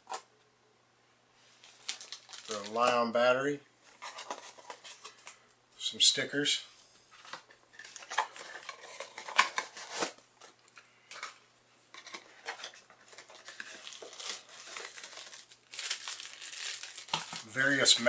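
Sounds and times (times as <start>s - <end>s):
plastic bag rustling: 1.5s - 3.0s, 12.1s - 18.0s.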